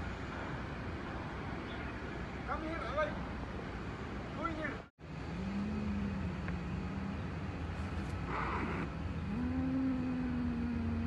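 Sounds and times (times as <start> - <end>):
steady low rumble: 5.0 - 11.0
cat hissing: 8.3 - 8.9.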